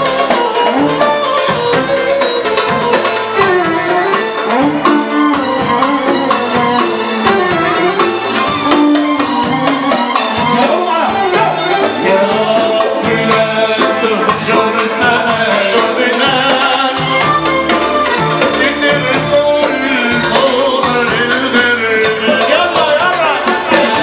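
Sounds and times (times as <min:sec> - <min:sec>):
drum kit: 0:00.0 - 0:24.0
hand drum: 0:00.0 - 0:24.0
violin: 0:00.0 - 0:24.0
man singing into a microphone: 0:10.4 - 0:17.4, 0:18.3 - 0:24.0.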